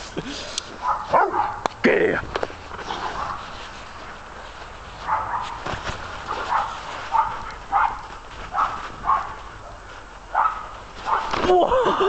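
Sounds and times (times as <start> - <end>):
large dog barking: 0.8 - 1.7, 3.0 - 3.4, 5.0 - 5.6, 6.3 - 11.4.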